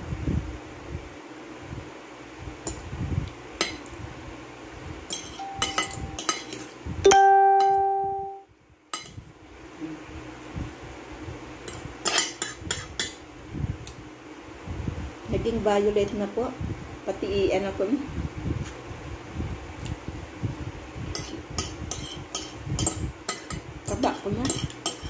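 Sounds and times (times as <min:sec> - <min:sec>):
fork and knife scraping plate: 0:05.1 - 0:06.8, 0:12.0 - 0:13.2, 0:21.2 - 0:23.6, 0:24.4 - 0:25.0
clear ringing note: 0:05.4 - 0:06.3, 0:07.0 - 0:08.5.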